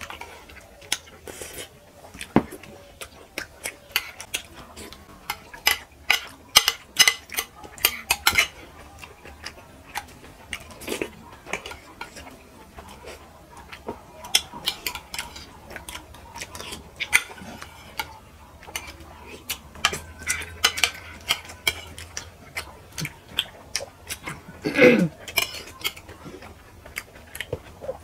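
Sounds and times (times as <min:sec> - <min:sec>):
spoons clinking on ceramic plates: 0:05.1 - 0:08.7, 0:16.6 - 0:22.3.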